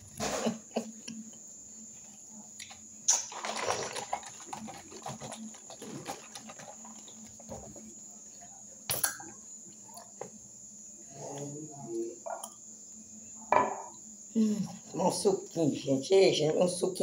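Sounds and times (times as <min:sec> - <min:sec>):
juice sloshing in plastic bottle: 0:03.1 - 0:08.0.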